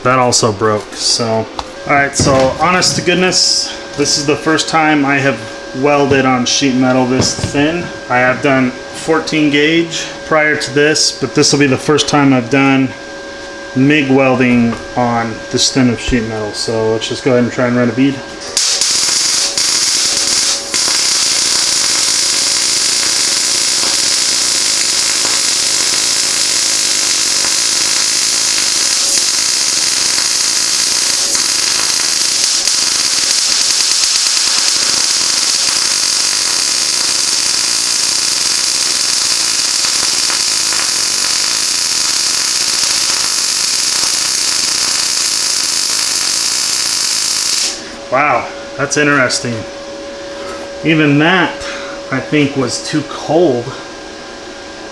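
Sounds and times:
welding arc crackling hiss: 0.1 - 12.9, 18.4 - 48.2.

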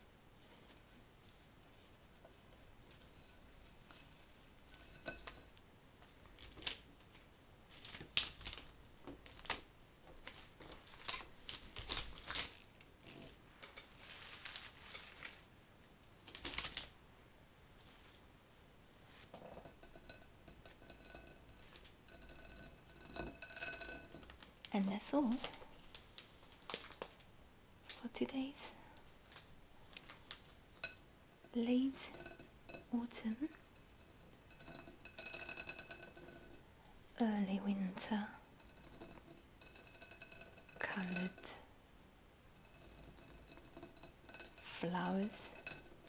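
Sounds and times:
leaves and stems rustling: 10.2 - 15.5.

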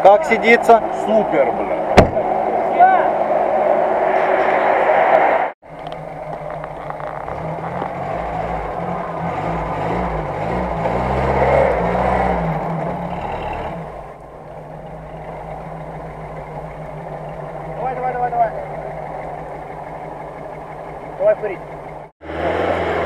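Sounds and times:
off-road vehicle engine revving: 5.7 - 23.0.

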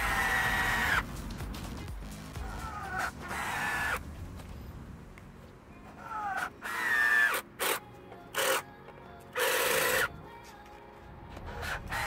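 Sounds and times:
cordless drill driving screws: 9.4 - 10.1.

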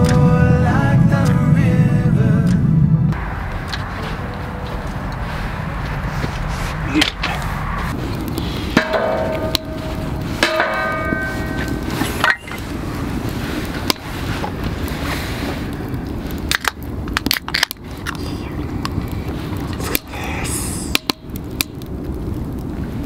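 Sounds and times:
sharp fire crackles: 0.0 - 23.0
wood fire burning in stove: 2.3 - 23.0
metallic clangs: 8.7 - 12.6.

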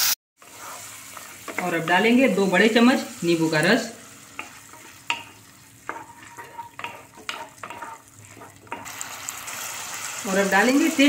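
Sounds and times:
soft sizzle: 0.0 - 11.0
wooden spatula scraping pan: 0.4 - 2.2, 4.4 - 8.9.

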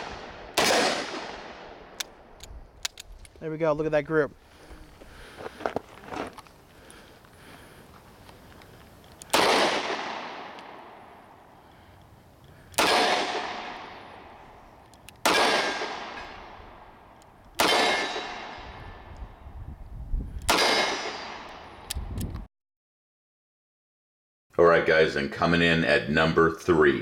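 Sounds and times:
revolver shots echoing: 0.0 - 2.0, 9.3 - 11.2, 12.8 - 14.4, 15.2 - 16.6, 17.6 - 18.7.

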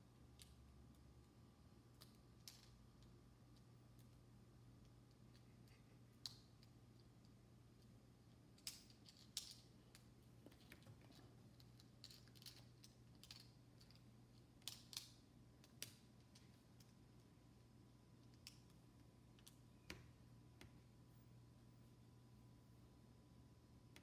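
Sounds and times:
plastic bricks clicking together: 11.5 - 14.0.

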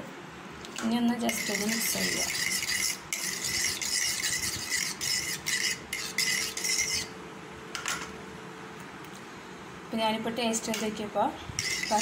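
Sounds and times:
fork scraping ceramic bowl: 1.2 - 7.1, 11.6 - 12.0.

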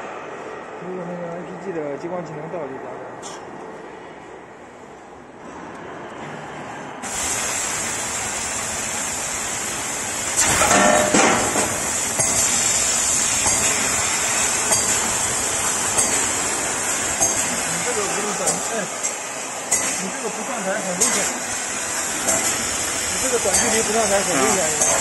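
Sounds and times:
laser cutter hissing: 7.0 - 25.0.

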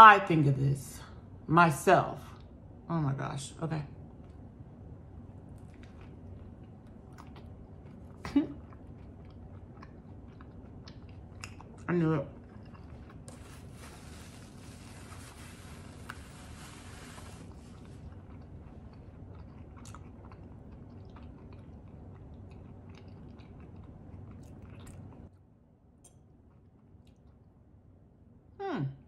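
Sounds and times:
person chewing food: 5.2 - 25.4, 26.0 - 27.6
paper napkin rubbing: 13.4 - 17.8
woman humming mm: 28.6 - 29.0.

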